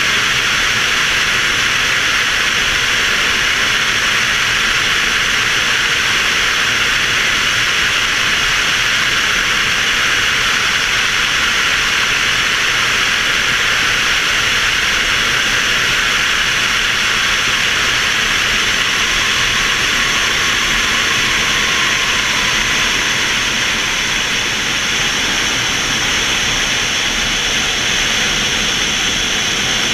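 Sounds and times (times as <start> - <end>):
rush of air hissing: 13.8 - 29.9.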